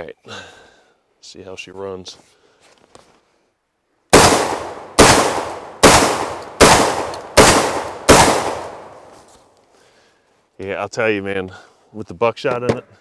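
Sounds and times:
shotgun shots with echo: 4.1s - 9.0s.

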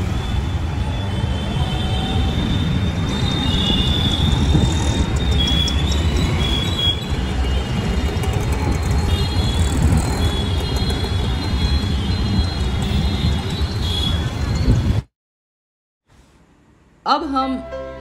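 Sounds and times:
rumble of passing motor traffic: 2.3s - 13.6s.

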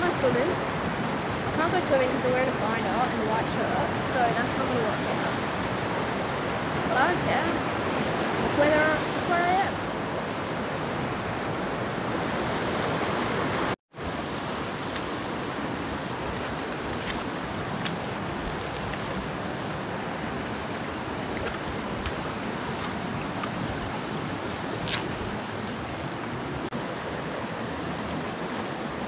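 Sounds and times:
water rushing over rocks: 0.0s - 29.0s.

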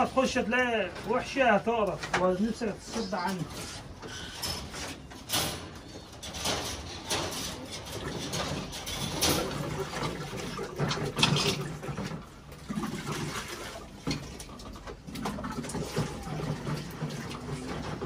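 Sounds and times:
water sloshing in a plastic bucket: 8.0s - 18.0s.

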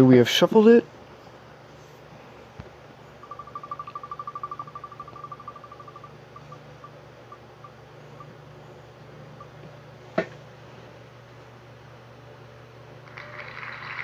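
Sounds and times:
spinning wheel ticking: 3.2s - 8.3s.

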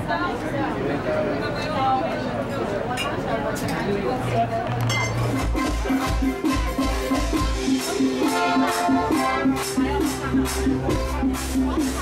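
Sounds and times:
upbeat dance music: 5.0s - 12.0s.

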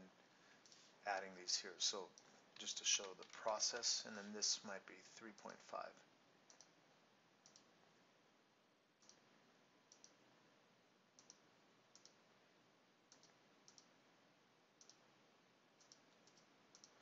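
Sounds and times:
computer mouse clicks: 6.5s - 6.8s, 7.4s - 7.7s, 9.0s - 9.2s, 9.9s - 10.2s, 11.2s - 12.2s, 13.1s - 14.0s, 14.8s - 15.0s, 15.8s - 17.0s.

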